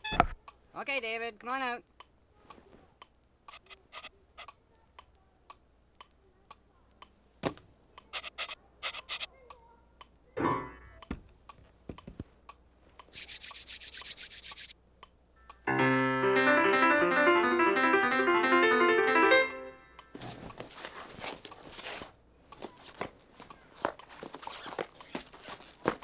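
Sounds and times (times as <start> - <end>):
high-pitched chatter: 3.5 - 5.0, 8.0 - 9.7, 13.1 - 14.7
short squeak: 8.2 - 9.3.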